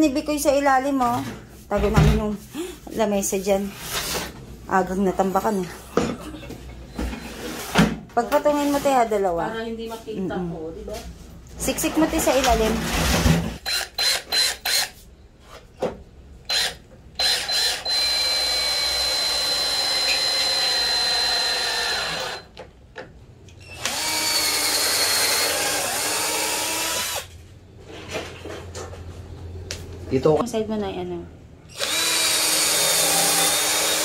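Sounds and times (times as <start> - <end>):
cordless drill whining: 13.6 - 14.9, 16.5 - 22.5, 23.6 - 27.3, 31.7 - 34.0.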